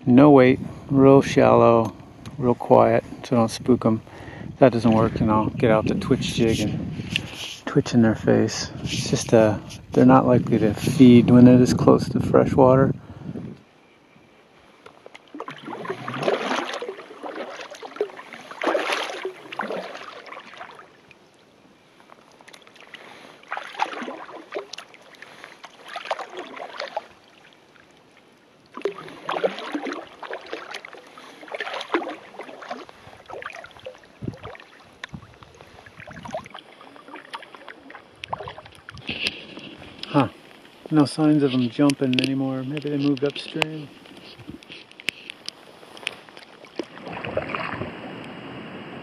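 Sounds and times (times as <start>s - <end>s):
paddle splashing in water: 14.9s - 21.3s, 22.2s - 40.8s, 42.8s - 48.7s.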